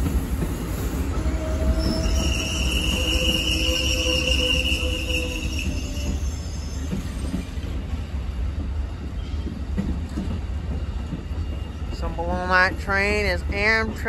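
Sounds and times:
train cars rolling on rails: 0.0s - 14.0s
high wheel squeal: 1.2s - 7.5s.

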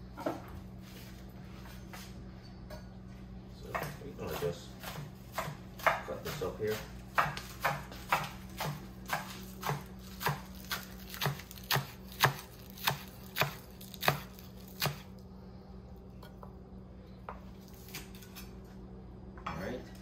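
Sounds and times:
knife chopping on wooden board: 3.7s - 15.1s.

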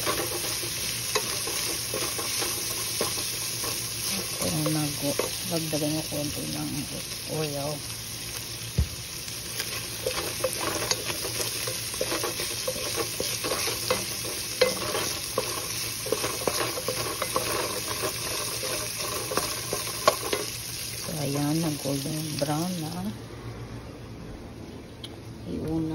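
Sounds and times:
wooden spoon scraping a pan: 0.0s - 6.2s, 9.6s - 21.8s
food sizzling in oil: 0.0s - 23.2s.

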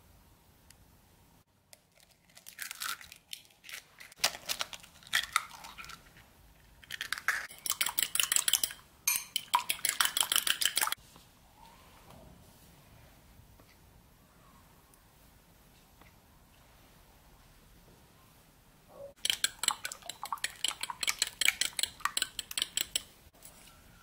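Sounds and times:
eggs beaten in ceramic bowl: 6.9s - 11.0s, 19.2s - 23.2s.

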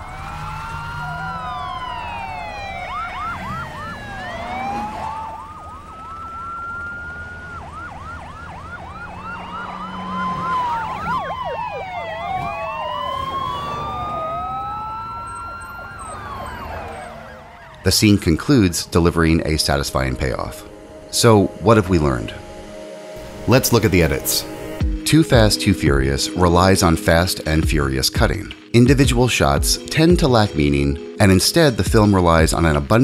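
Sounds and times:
police sirens wailing and yelping: 0.0s - 25.6s.

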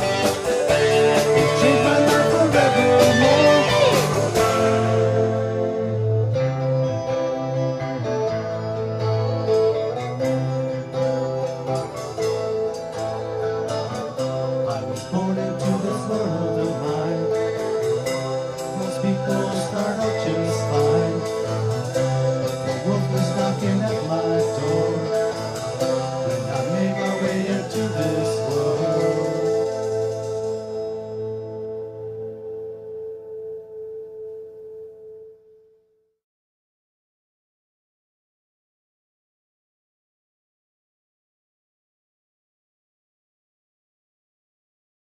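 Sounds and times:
person singing: 0.0s - 6.0s, 14.5s - 30.5s
guitar accompaniment: 0.0s - 35.7s.

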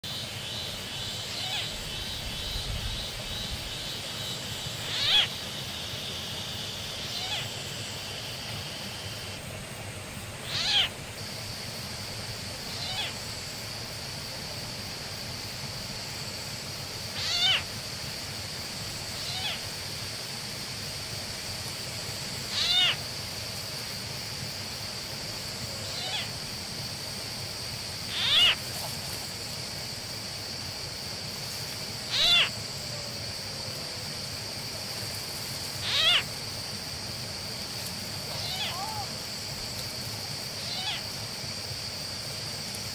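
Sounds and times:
animal falling cries: 4.9s - 5.3s, 10.5s - 10.9s, 17.2s - 17.6s, 22.6s - 23.0s, 28.2s - 28.6s, 32.1s - 32.5s, 35.8s - 36.3s, 38.3s - 39.1s.

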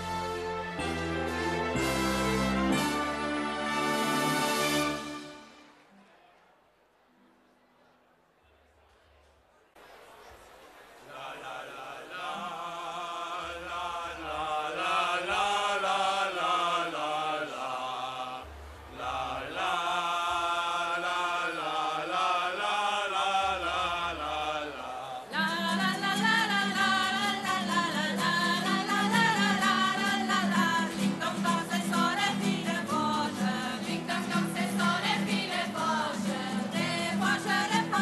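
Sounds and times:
choir singing in unison: 0.0s - 5.6s, 11.1s - 38.0s
strummed acoustic guitars: 25.3s - 38.0s.

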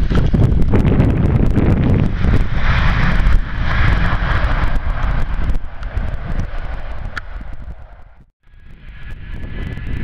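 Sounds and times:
jet engine roar: 0.0s - 10.0s
wind buffeting microphone: 0.0s - 10.0s.

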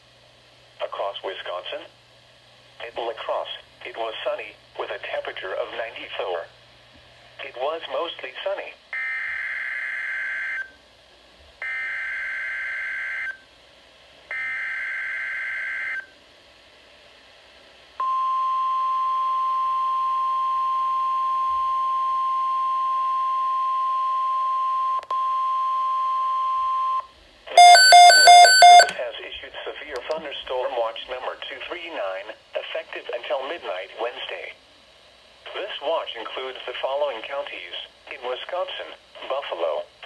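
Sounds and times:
rapid alarm beeping: 27.6s - 29.0s
steady warning alarm tone: 27.6s - 29.0s.

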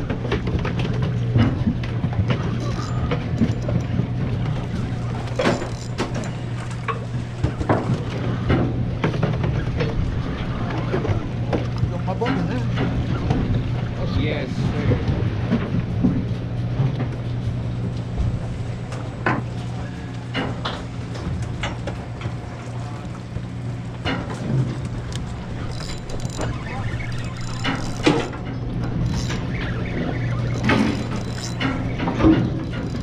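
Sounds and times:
boat engine humming: 0.0s - 33.0s
sharp clicks and knocks: 0.1s - 10.1s, 23.9s - 33.0s.

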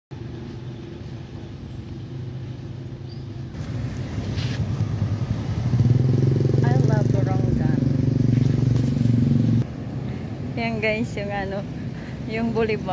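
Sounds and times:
motorcycle engine running: 3.6s - 9.6s.

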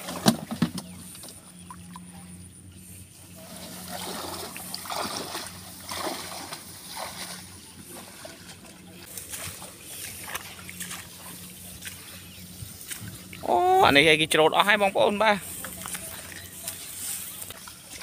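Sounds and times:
reeds and grass swishing: 2.8s - 14.1s, 14.9s - 18.0s
footsteps on muddy path: 3.4s - 14.1s, 14.8s - 18.0s.

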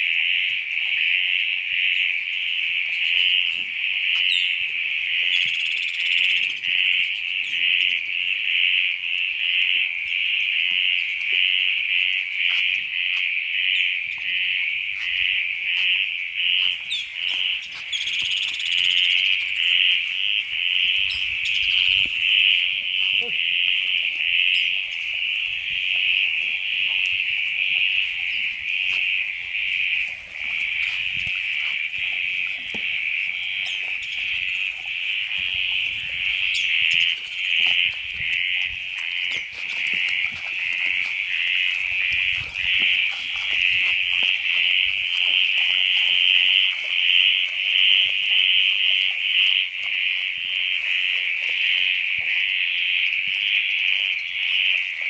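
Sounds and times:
bird chirps: 4.2s - 4.6s, 5.2s - 6.7s, 16.8s - 19.6s, 33.5s - 34.6s, 36.4s - 37.5s.

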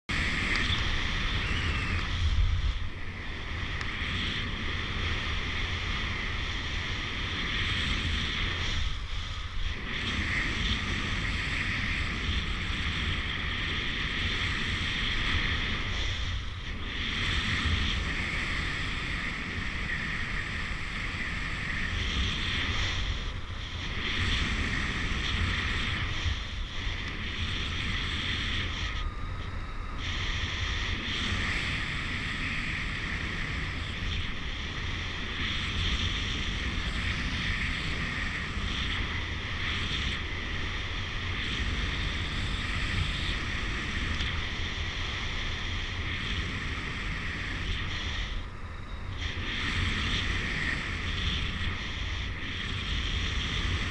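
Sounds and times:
wind rushing over microphone: 0.0s - 53.9s.

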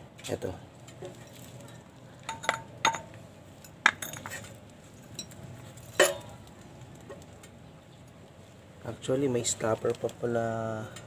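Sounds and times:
metal tools clinking: 1.2s - 6.3s.

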